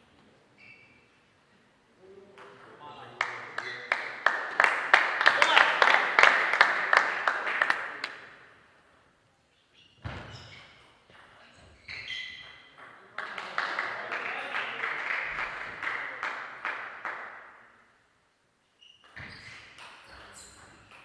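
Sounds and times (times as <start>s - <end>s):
crowd clapping: 3.2s - 8.4s, 13.1s - 17.6s.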